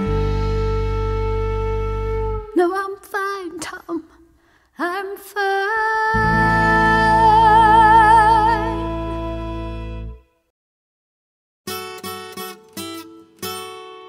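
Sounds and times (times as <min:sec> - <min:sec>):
person singing with vibrato: 0:02.4 - 0:09.8.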